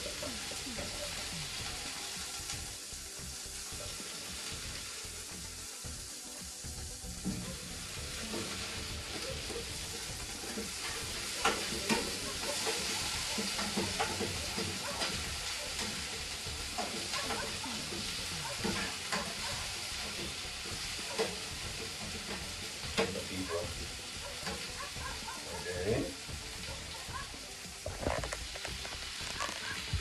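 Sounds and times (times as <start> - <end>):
food sizzling in hot oil: 0.0 - 30.0
utensil clicking on pan: 10.5 - 16.1, 18.6 - 19.5.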